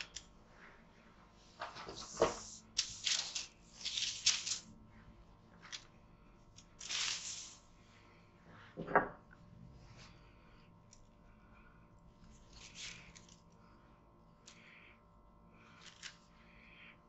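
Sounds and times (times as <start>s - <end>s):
baking paper rustling on wood: 1.6s - 4.7s, 6.8s - 7.7s, 12.4s - 13.4s.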